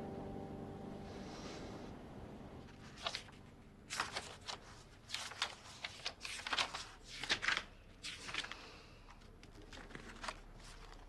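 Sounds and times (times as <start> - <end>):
album pages turning: 2.7 - 11.0.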